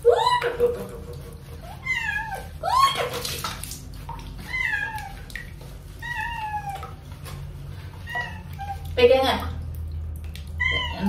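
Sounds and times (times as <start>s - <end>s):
cat meowing: 10.6s - 11.0s.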